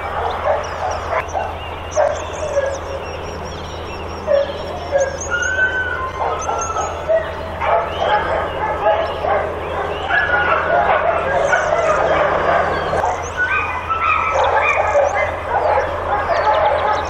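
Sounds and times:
dogs barking and yelping: 0:00.0 - 0:17.0
dog whining: 0:04.2 - 0:17.0.

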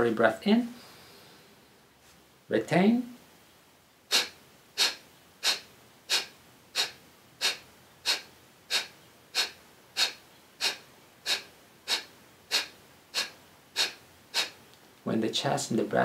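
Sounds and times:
forceful nasal exhalations: 0:04.1 - 0:14.6.

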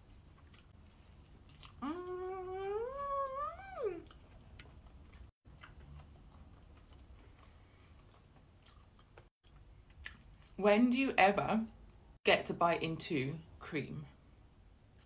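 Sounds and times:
faint chewing: 0:00.3 - 0:10.6
woman humming mmm: 0:01.8 - 0:04.1.

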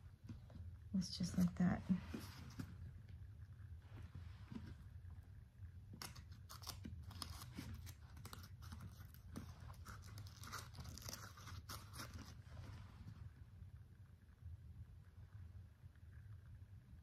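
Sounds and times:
paper crinkling: 0:05.9 - 0:12.8.

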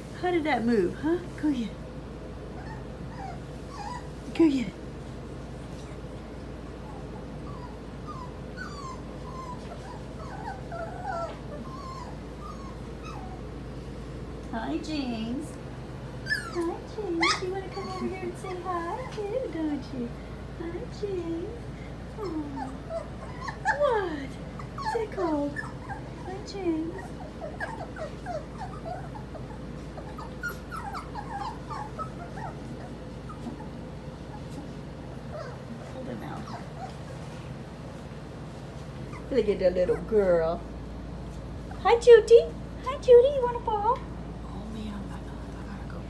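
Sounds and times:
puppies whimpering and whining: 0:02.5 - 0:04.4, 0:05.2 - 0:13.9, 0:16.2 - 0:19.4, 0:22.1 - 0:38.0, 0:38.8 - 0:40.4.

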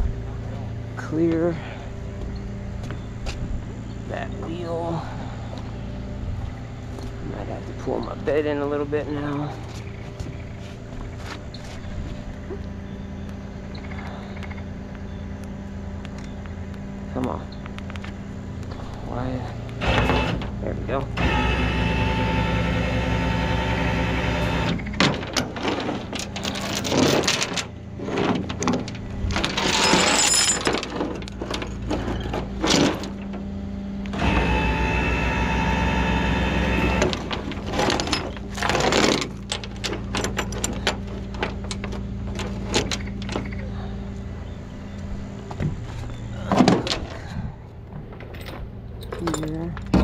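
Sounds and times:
tow truck winch drone: 0:17.9 - 0:48.0
chain and metal clanking: 0:25.0 - 0:33.4, 0:37.1 - 0:43.6, 0:48.0 - 0:50.0.

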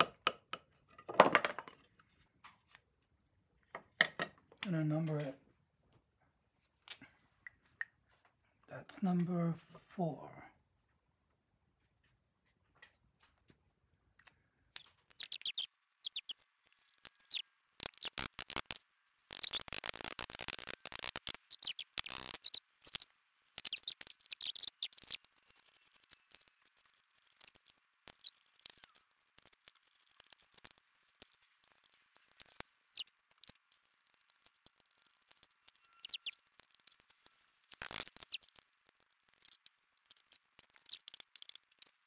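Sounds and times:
wooden chair parts clicking and tapping: 0:00.0 - 0:02.6.

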